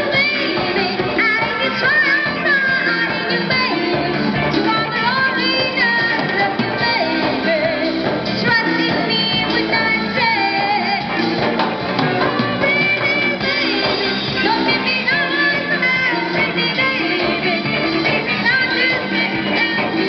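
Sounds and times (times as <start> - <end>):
live band playing pop song: 0.0 - 20.0
woman singing into microphone: 0.0 - 20.0.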